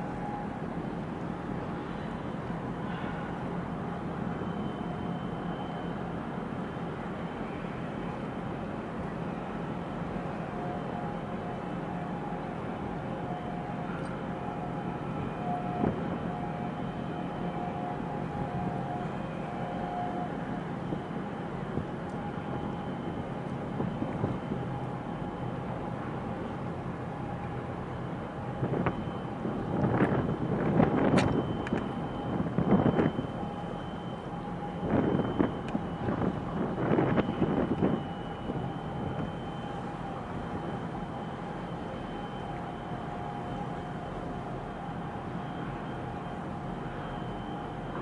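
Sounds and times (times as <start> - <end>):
low harbour rumble: 0.0 - 48.0
wind buffeting microphone: 20.9 - 24.9, 28.4 - 39.6.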